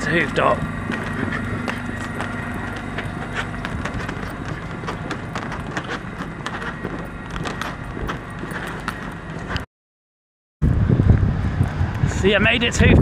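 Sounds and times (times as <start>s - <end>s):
steady low hum: 0.0s - 9.7s, 10.6s - 13.0s
brisk footsteps clicking: 0.1s - 9.7s.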